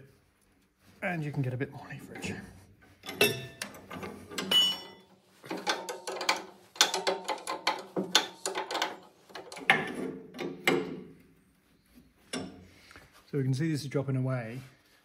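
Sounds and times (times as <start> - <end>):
spanners clinking on metal bolt: 3.0 - 11.0.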